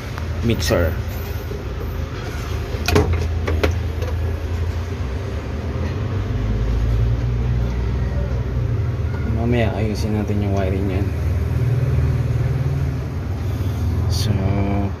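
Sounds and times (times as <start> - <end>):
plugs and cables clunking: 2.8 - 4.2.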